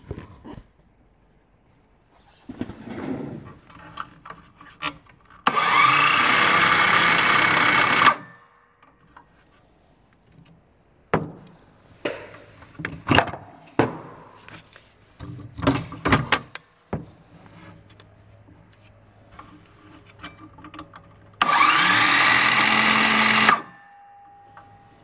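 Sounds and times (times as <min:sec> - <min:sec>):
circular saw motor whine: 0:05.5 - 0:08.3, 0:21.4 - 0:25.0.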